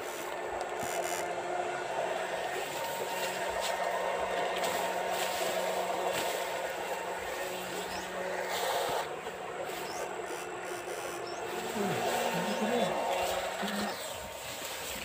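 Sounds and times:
inverter humming: 0:00.0 - 0:15.0.

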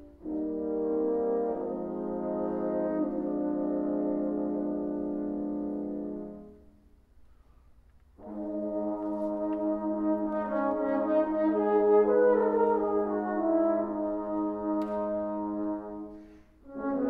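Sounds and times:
french horns playing: 0:00.0 - 0:07.0, 0:08.2 - 0:17.0.

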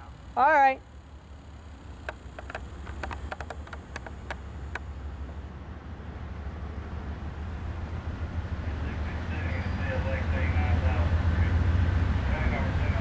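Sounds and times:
diesel locomotive rumble: 0:00.0 - 0:13.0
sharp clicks: 0:02.0 - 0:04.9.

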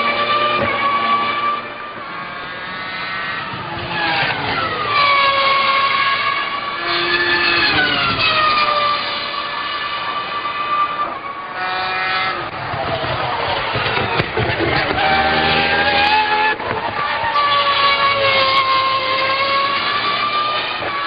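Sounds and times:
racing car engine at high speed: 0:00.0 - 0:21.0.

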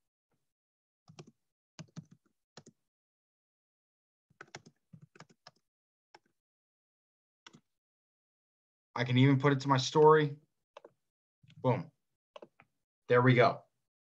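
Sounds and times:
typing on keyboard: 0:01.1 - 0:02.7, 0:04.4 - 0:05.6.

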